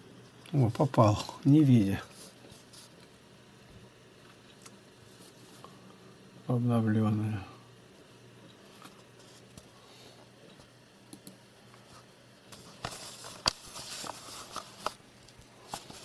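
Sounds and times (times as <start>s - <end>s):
small clicks: 10.5s - 11.4s
rustling: 12.5s - 16.0s.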